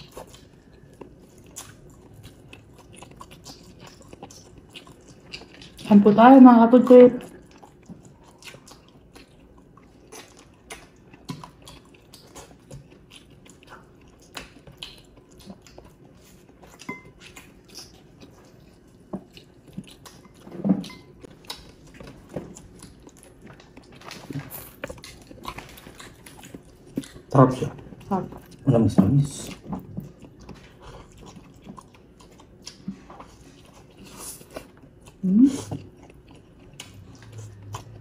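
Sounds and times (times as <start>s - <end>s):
chewing and lip smacks: 0.0s - 5.9s, 7.2s - 28.7s, 29.3s - 38.0s.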